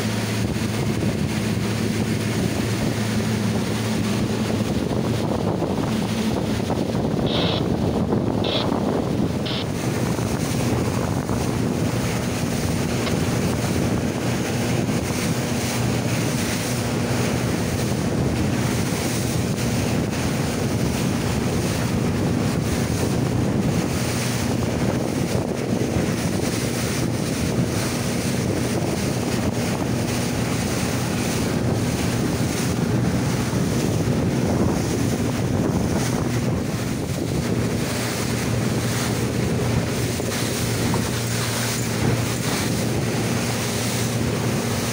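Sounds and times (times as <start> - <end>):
boat engine hum: 0.0 - 44.9
water rushing along hull: 0.0 - 44.9
wind buffeting microphone: 0.0 - 44.9.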